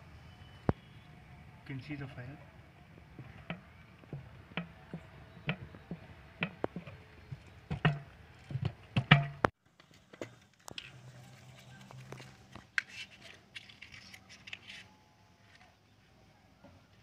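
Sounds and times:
plastic bottle clicking and knocking: 3.2 - 9.5.

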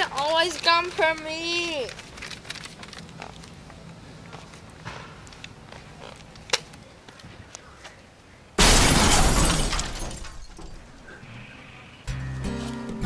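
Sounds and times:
loud shattering crash: 8.6 - 10.8
music: 12.1 - 13.0.

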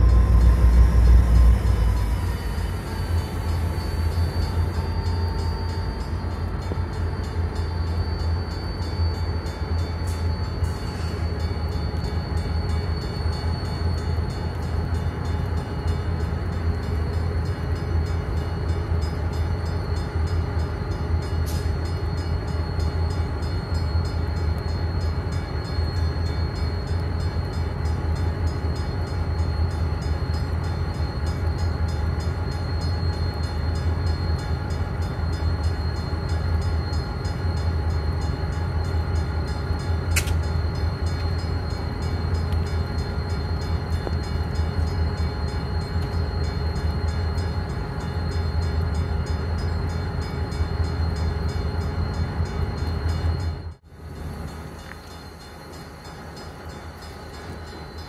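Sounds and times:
faint high whine: 0.0 - 58.0
locomotive idling rumble: 0.0 - 58.0
sharp clicks: 40.1 - 40.4.

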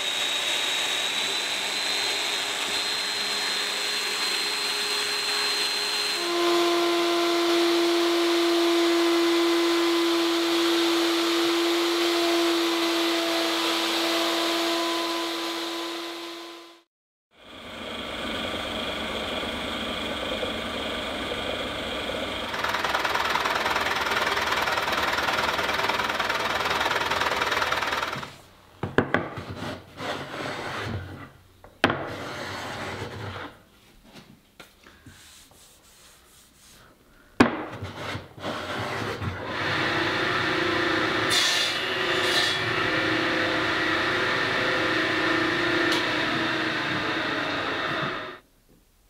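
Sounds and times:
power tool running: 0.0 - 28.5, 38.6 - 48.4
hand plane shaving wood: 22.5 - 28.4, 29.4 - 31.3, 37.7 - 39.6.

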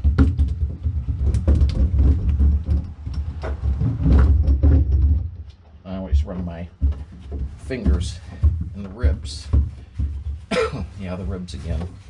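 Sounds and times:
rumbling of pressed metal panel: 0.0 - 12.0.

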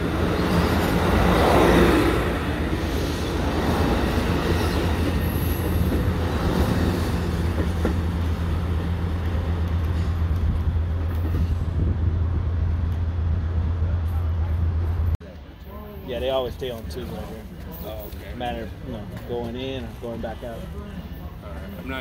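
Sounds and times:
train wheels on rails: 0.0 - 15.2.

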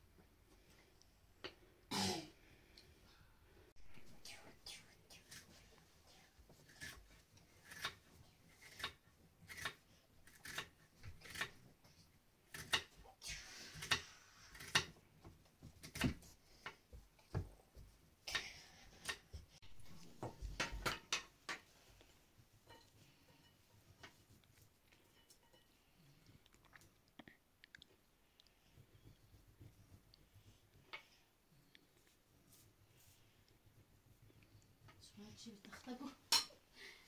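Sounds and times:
knife scraping: 6.6 - 11.6.

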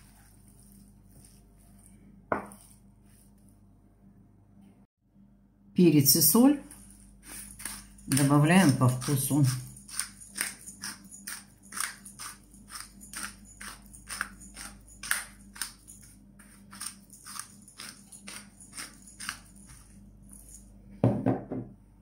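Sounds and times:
wooden spoon stirring mixture: 0.0 - 3.5, 6.2 - 20.6.

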